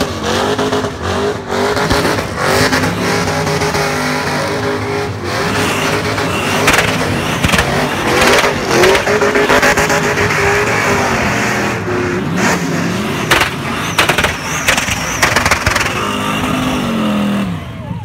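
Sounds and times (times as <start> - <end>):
car engine revving hard: 0.0 - 17.7
sharp cracks: 6.6 - 9.2, 13.2 - 16.2
spinning tyres hissing: 13.0 - 17.1.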